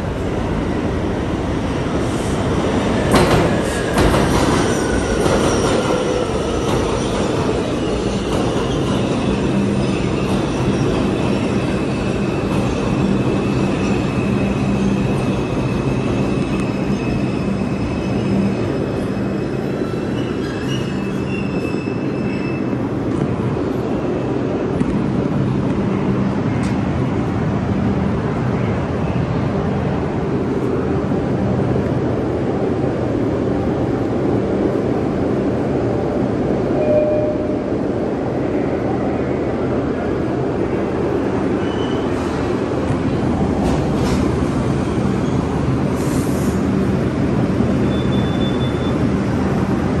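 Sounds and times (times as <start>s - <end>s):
subway train rumbling: 0.0s - 50.0s
air hiss: 45.9s - 46.7s
brief high squeal: 47.8s - 49.0s.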